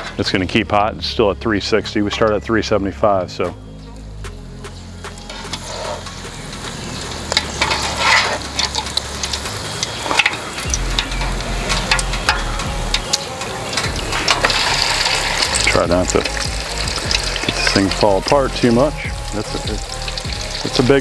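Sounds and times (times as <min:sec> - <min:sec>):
oil sizzling: 0:04.0 - 0:21.0
metal utensils scraping a pot: 0:05.2 - 0:06.3, 0:07.3 - 0:18.3.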